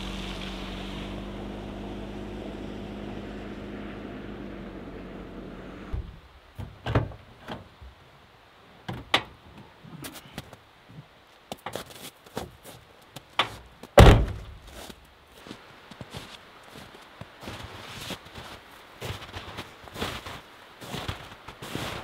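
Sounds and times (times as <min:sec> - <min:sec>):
car engine humming: 0:00.0 - 0:06.6.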